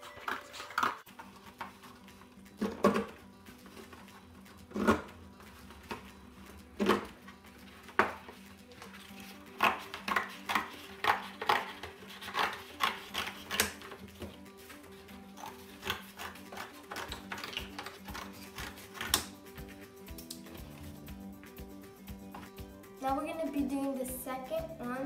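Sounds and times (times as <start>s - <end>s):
scissors snipping cardboard: 9.5s - 14.4s, 15.4s - 19.3s.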